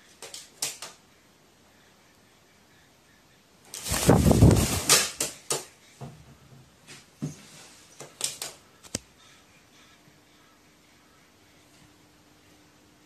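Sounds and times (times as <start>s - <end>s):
bird wings flapping: 3.7s - 5.7s.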